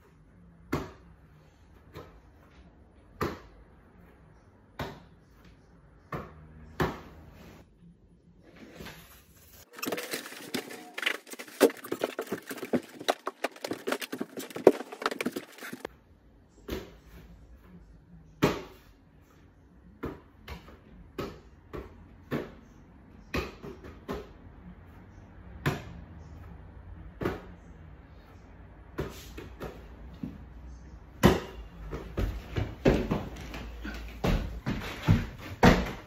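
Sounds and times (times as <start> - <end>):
rapid clatter and crackling: 9.7 - 15.9.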